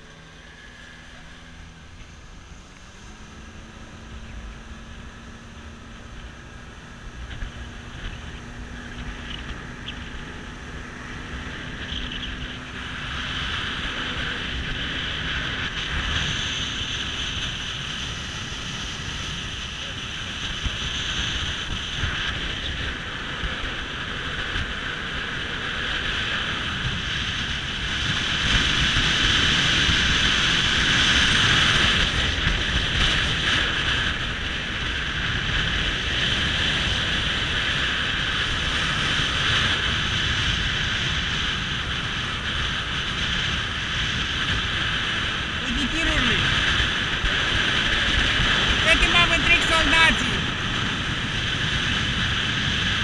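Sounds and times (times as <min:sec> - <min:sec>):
boat motor running: 0:00.0 - 0:23.8, 0:25.0 - 0:53.0.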